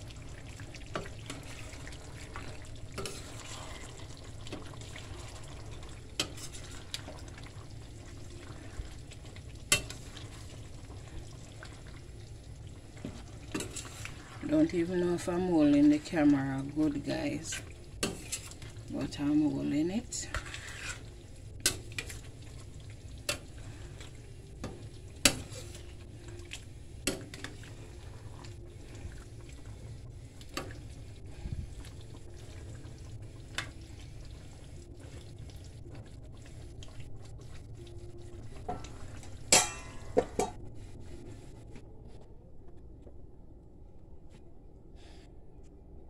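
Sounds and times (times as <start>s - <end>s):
spoon stirring wet food: 0.0s - 12.0s, 12.8s - 29.7s.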